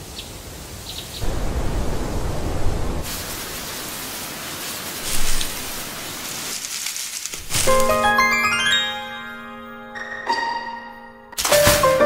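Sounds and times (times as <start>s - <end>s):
rushing rain-like hiss: 0.0s - 8.5s
deep rumble: 1.2s - 3.2s.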